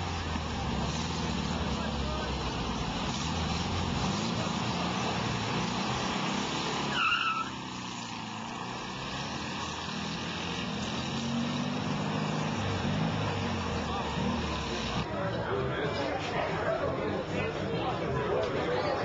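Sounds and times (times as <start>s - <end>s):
tyre squeal: 6.8s - 7.7s.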